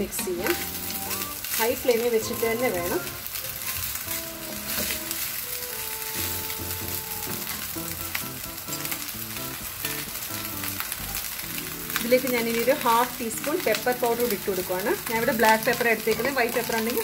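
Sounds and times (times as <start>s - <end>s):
rice sizzling in a pan: 0.0s - 17.0s
wooden spatula scraping: 0.5s - 7.8s.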